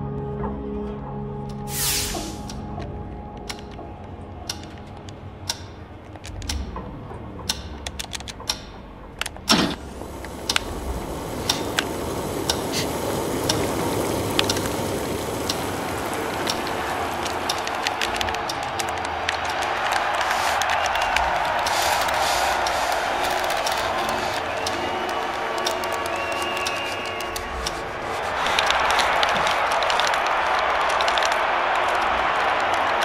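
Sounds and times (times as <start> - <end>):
hiss: 1.6 - 2.6, 9.5 - 18.8, 19.5 - 32.2
sharp clicks and ticks: 2.1 - 3.8, 4.4 - 33.0
low rumble: 5.1 - 18.7.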